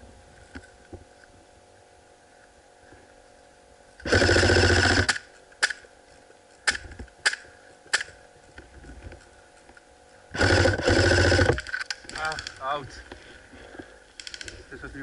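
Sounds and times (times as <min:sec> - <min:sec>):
airsoft gun full-auto burst: 0:04.0 - 0:05.3, 0:10.3 - 0:11.7.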